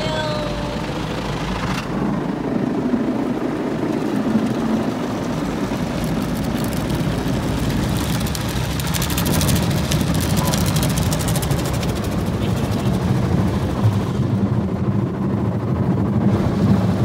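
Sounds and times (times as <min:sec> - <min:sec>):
car wash brushes rumbling: 0:04.3 - 0:14.4
water spray on car windows: 0:05.5 - 0:13.0.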